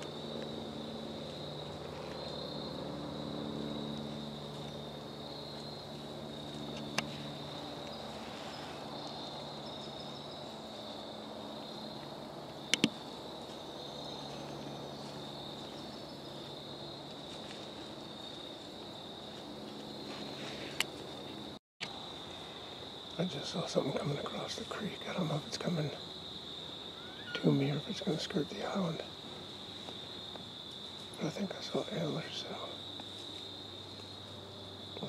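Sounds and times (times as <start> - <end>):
crickets and insects chirping: 0.0 - 35.0
sharp clicks: 12.7 - 13.0.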